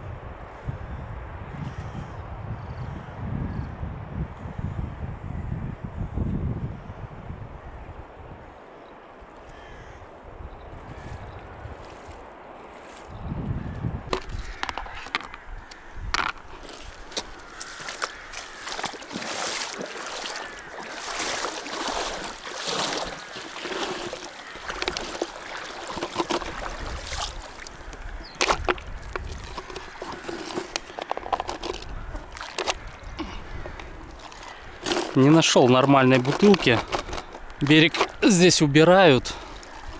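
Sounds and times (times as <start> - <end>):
wind buffeting microphone: 0.0 - 8.6, 9.6 - 35.2
water sloshing around legs: 16.2 - 38.3, 39.1 - 39.9
corn rattling in plastic tub: 34.8 - 35.3.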